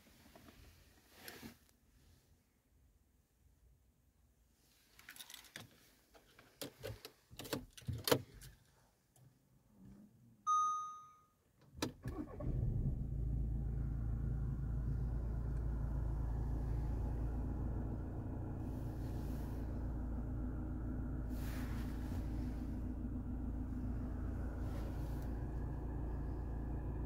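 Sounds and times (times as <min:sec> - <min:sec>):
dashboard chime: 0:10.5 - 0:11.3
diesel engine starting and idling: 0:11.8 - 0:27.0.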